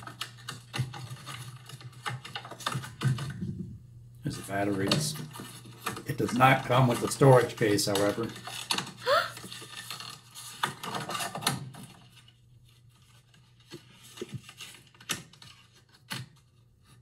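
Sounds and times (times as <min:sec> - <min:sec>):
plastic packaging crackling: 0:04.3 - 0:16.1.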